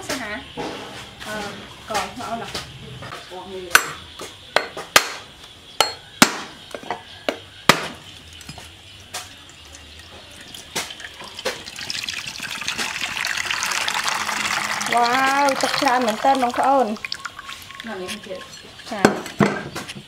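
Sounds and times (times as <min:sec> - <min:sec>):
cleaver knocking on coconut: 0:05.8 - 0:06.5, 0:07.3 - 0:08.0
water pouring into metal bowl: 0:08.0 - 0:19.4.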